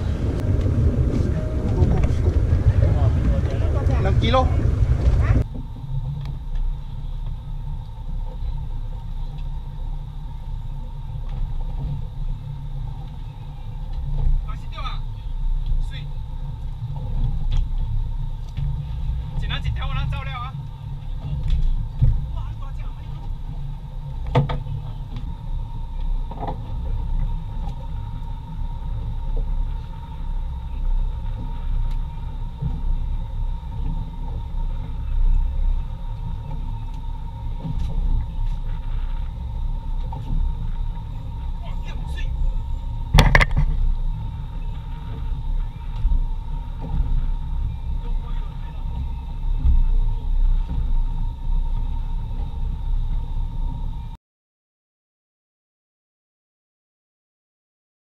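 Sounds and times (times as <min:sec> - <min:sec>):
boat rumble: 0:00.0 - 0:54.2
wind: 0:00.0 - 0:54.2
faint ticks: 0:31.2 - 0:34.1.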